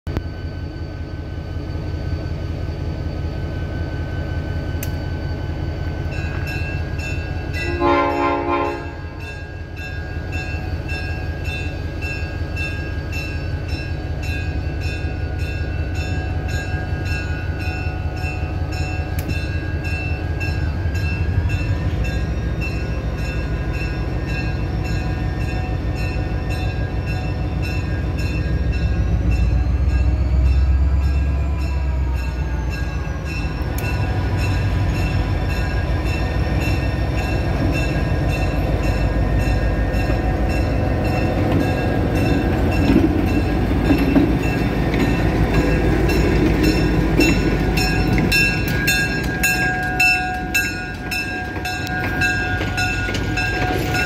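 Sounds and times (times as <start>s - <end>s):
locomotive bell ringing: 0.1s - 54.0s
train horn blast: 7.6s - 9.2s.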